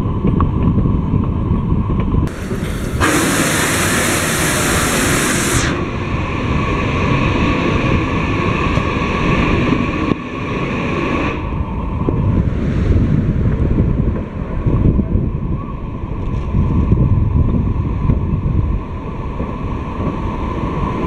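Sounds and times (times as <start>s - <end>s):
train rolling rumble: 0.0s - 21.0s
steam hissing: 2.3s - 12.0s.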